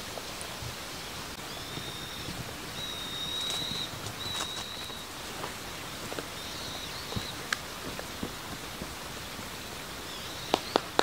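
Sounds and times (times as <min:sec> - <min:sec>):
steady outdoor hiss: 0:00.0 - 0:11.0
whistled bird notes: 0:01.0 - 0:07.5, 0:09.2 - 0:11.0.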